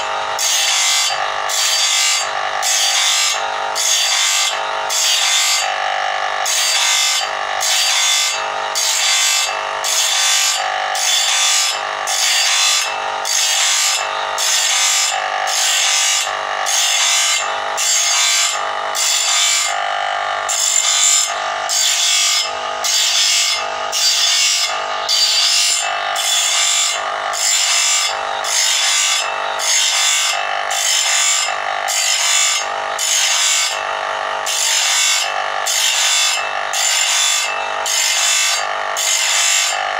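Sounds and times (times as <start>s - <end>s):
abrasive disc grinding saw teeth: 0.0s - 39.9s
electric motor running: 0.0s - 39.9s.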